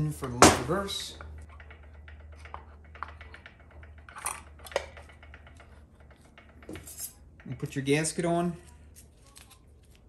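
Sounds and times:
metal parts clicking: 0.0s - 8.4s.

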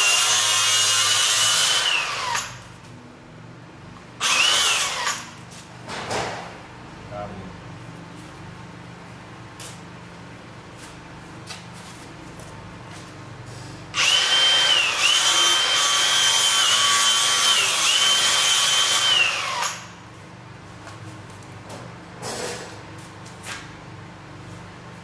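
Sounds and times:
cordless power tool motor whining: 0.0s - 2.6s, 14.0s - 19.9s.

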